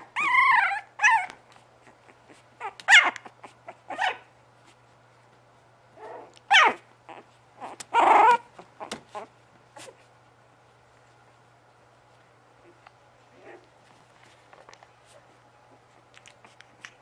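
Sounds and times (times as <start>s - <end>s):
puppies yipping and whining: 0.0s - 4.8s, 6.0s - 10.1s.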